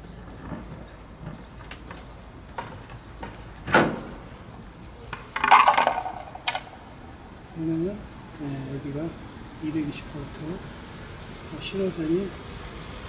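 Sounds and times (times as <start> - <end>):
metal cover clattering and scraping: 5.4 - 6.6.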